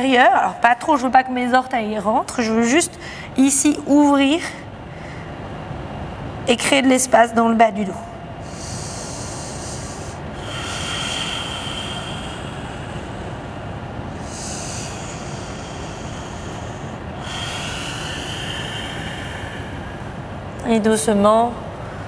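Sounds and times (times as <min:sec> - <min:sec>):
deep audible breathing: 0:08.3 - 0:20.6.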